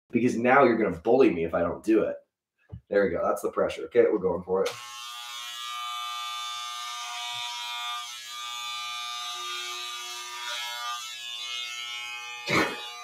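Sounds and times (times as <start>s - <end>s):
electric trimmer buzzing: 4.7s - 13.0s.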